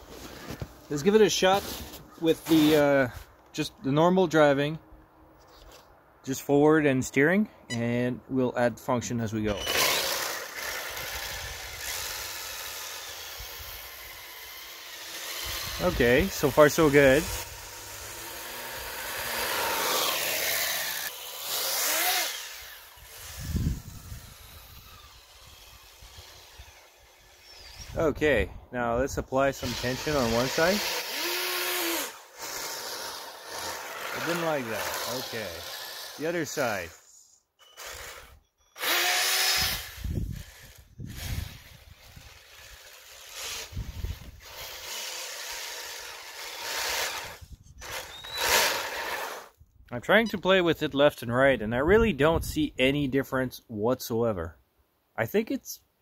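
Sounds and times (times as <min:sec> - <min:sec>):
toy snowmobile motor whirring: 0:09.5 - 0:28.0, 0:29.5 - 0:49.6
wind buffeting microphone: 0:23.0 - 0:26.7, 0:39.6 - 0:42.4, 0:43.7 - 0:44.4.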